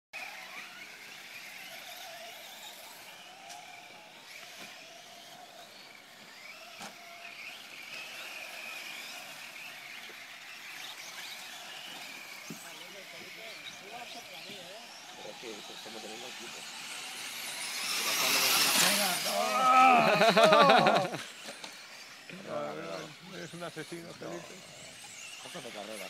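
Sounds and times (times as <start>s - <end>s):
rc truck motors whining: 0.2s - 26.0s.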